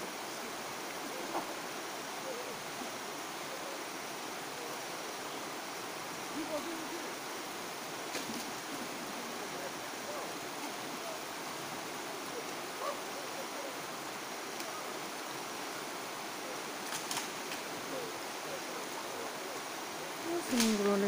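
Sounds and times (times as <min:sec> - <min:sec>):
fast-flowing river rushing: 0:00.0 - 0:21.0
faint clicks: 0:16.8 - 0:17.7.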